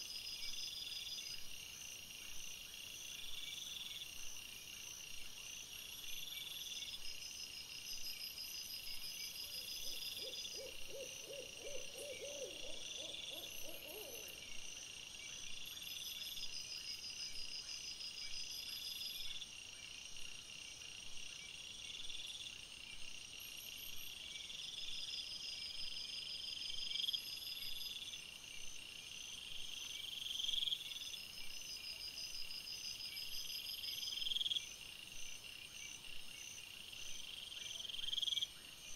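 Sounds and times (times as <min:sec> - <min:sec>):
insects chirping: 0:00.0 - 0:38.9.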